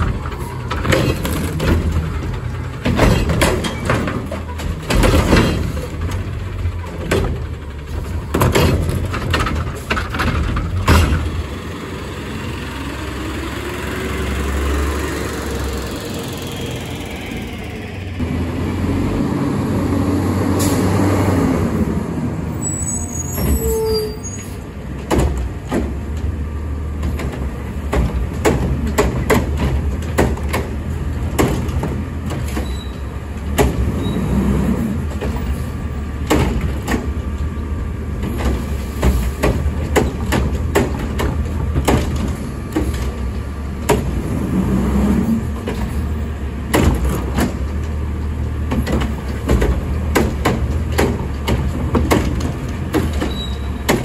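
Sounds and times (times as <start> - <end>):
knocks and clanks: 0.0 - 11.5, 24.9 - 34.2, 34.8 - 54.0
garbage truck engine running: 0.0 - 54.0.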